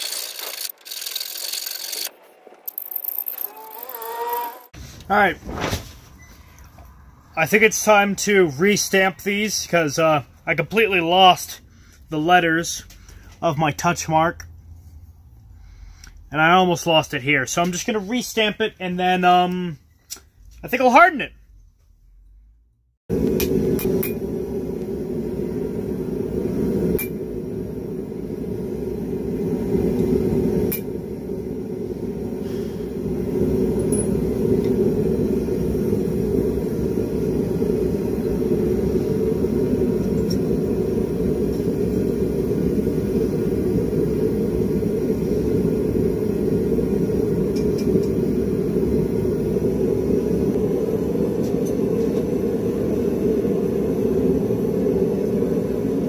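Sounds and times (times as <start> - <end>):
forge roaring: 23.1 - 56.0.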